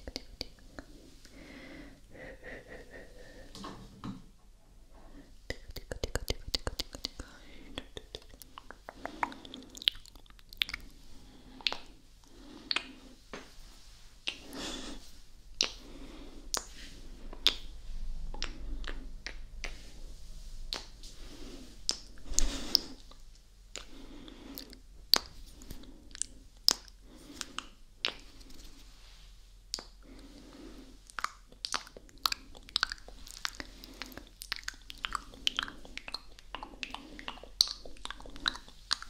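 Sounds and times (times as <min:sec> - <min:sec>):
wet mouth sounds: 0:00.0 - 0:01.0, 0:05.4 - 0:12.0, 0:12.6 - 0:13.0, 0:14.2 - 0:15.9, 0:16.5 - 0:17.7, 0:18.3 - 0:19.9, 0:20.7 - 0:21.0, 0:21.8 - 0:28.8, 0:29.7 - 0:30.1, 0:31.0 - 0:39.0
tongue clicks: 0:05.5 - 0:10.8, 0:11.6 - 0:11.9, 0:12.7 - 0:13.0, 0:29.7 - 0:30.0
lip smacks and kisses: 0:05.5 - 0:10.9, 0:11.6 - 0:11.9, 0:12.7 - 0:13.0, 0:14.2 - 0:14.6, 0:15.6 - 0:15.8, 0:17.4 - 0:17.7, 0:18.4 - 0:19.8, 0:20.7 - 0:21.0, 0:21.9 - 0:23.9, 0:24.6 - 0:28.7, 0:29.7 - 0:30.0, 0:31.1 - 0:39.0.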